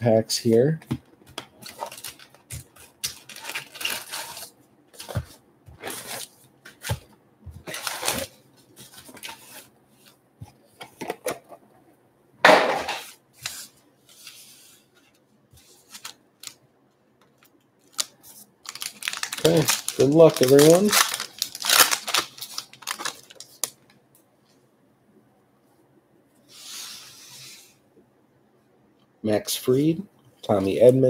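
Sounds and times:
card packs rustling: 0:00.5 - 0:11.6, 0:15.6 - 0:16.6, 0:17.3 - 0:23.8.

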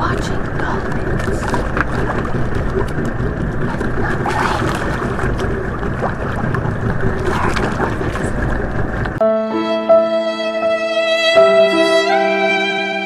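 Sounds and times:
water around boat: 0:00.0 - 0:09.2
wind on microphone: 0:00.0 - 0:09.2
music with sustained strings: 0:09.2 - 0:13.0.

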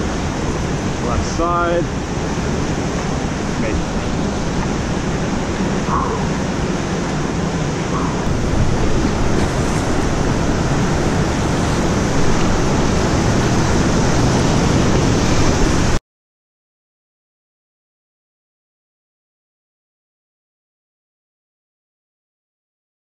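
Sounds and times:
whitewater rapid roaring: 0:00.0 - 0:16.0.

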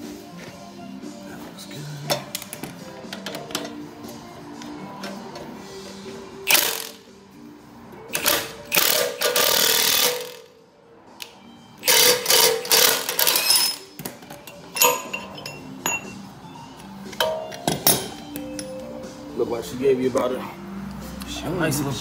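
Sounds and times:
impact wrench hammering: 0:06.5 - 0:07.0, 0:08.1 - 0:10.5, 0:11.8 - 0:14.1.

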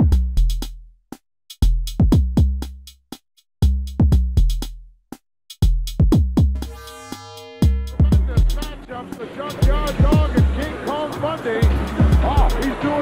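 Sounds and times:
looped electronic beat: 0:00.0 - 0:00.8, 0:01.5 - 0:04.8, 0:05.5 - 0:13.0
low bass: 0:00.0 - 0:01.0, 0:01.6 - 0:03.0, 0:03.6 - 0:05.0, 0:05.6 - 0:09.0, 0:09.6 - 0:10.8, 0:11.6 - 0:12.8
held synth chord: 0:06.6 - 0:10.6.

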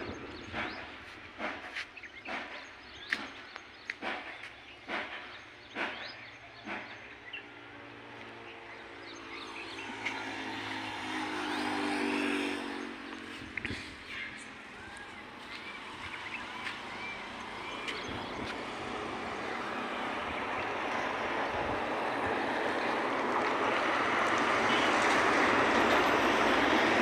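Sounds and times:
motorcycle engine approaching: 0:09.1 - 0:16.8.

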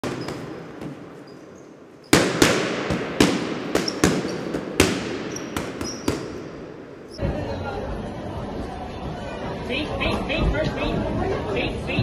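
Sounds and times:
sharp echoing bangs: 0:00.0 - 0:07.2.

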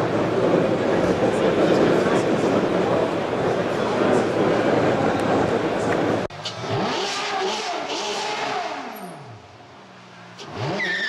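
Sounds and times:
car engine revving: 0:06.3 - 0:11.0.

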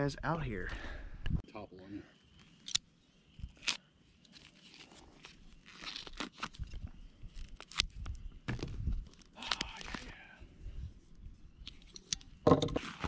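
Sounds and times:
plastic packaging crinkling: 0:03.6 - 0:08.0.

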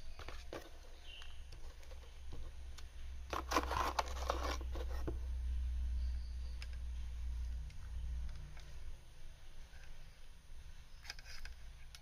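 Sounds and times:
steady low hum: 0:00.0 - 0:12.0
cardboard box rustling: 0:03.3 - 0:05.2.

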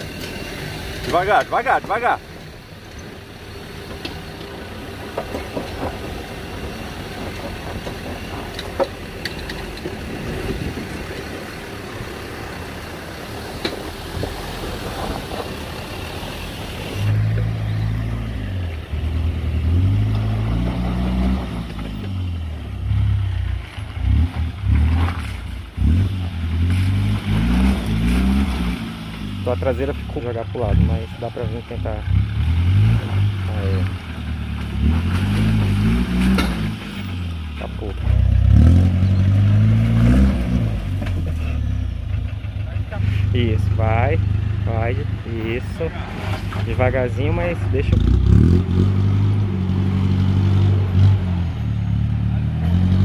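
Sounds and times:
engine running at low revs: 0:00.0 - 0:53.0
engine revving up and down: 0:16.5 - 0:42.0, 0:44.8 - 0:53.0.

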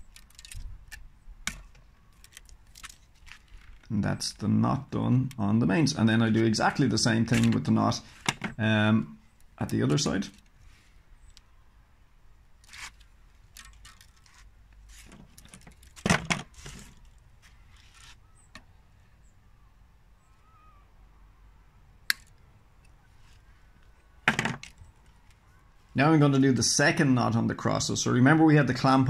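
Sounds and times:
racket string rustling and sliding: 0:00.0 - 0:03.9, 0:12.6 - 0:18.5.

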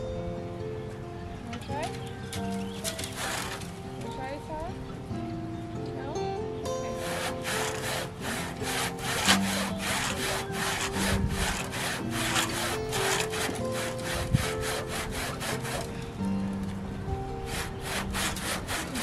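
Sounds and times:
hand saw cutting wood: 0:01.7 - 0:03.8, 0:06.9 - 0:16.0, 0:17.4 - 0:19.0.

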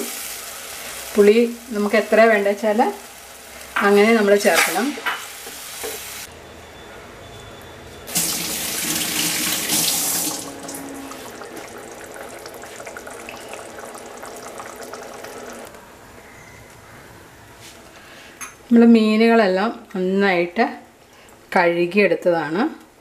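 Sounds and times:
water pouring: 0:08.1 - 0:15.7.

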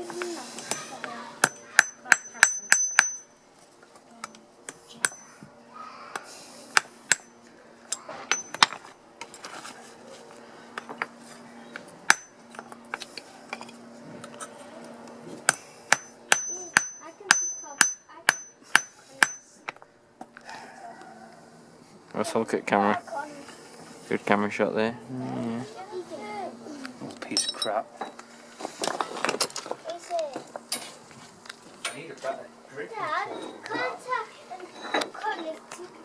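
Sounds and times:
hammer striking hot steel: 0:01.4 - 0:03.4, 0:05.0 - 0:05.4, 0:06.7 - 0:07.4, 0:08.3 - 0:08.8, 0:12.1 - 0:13.0, 0:15.4 - 0:19.8.

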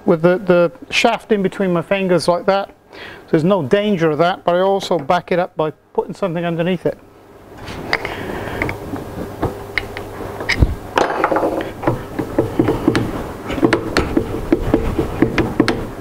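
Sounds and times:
steady hum: 0:00.0 - 0:16.0
metal clicks and knocks: 0:09.4 - 0:15.9.

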